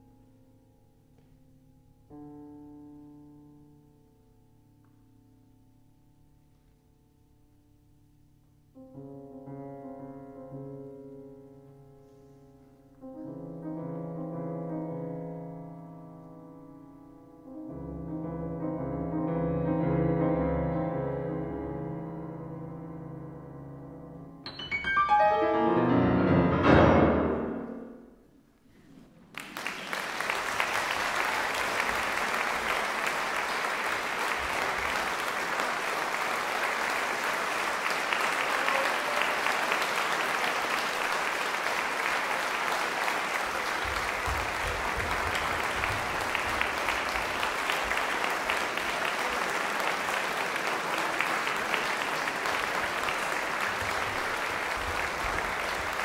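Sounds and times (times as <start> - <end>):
grand pianos playing: 0.0 - 28.5, 29.9 - 56.0
audience applause: 29.2 - 56.0.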